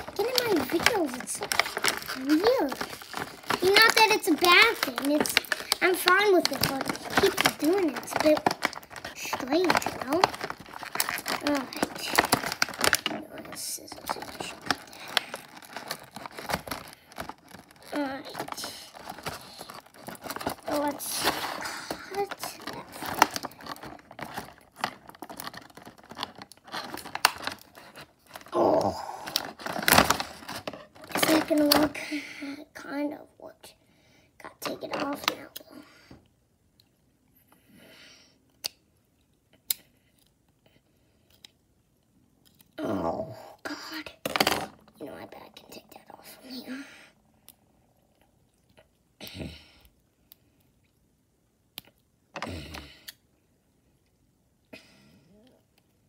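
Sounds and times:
scissors cutting plastic: 0.0s - 13.1s
plastic packaging crinkling: 0.0s - 32.0s.

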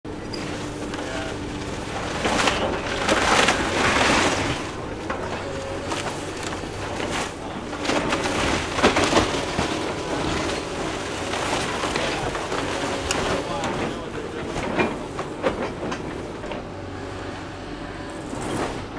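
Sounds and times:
excavator engine drone: 0.1s - 18.9s
timber crunching and cracking: 0.7s - 14.1s.

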